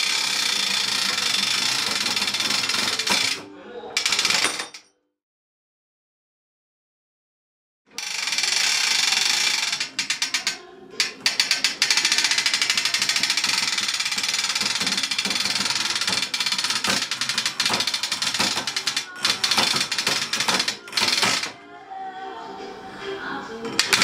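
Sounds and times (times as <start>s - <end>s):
ratchet winch clicking: 0.0s - 3.4s, 8.0s - 21.5s, 23.8s - 24.0s.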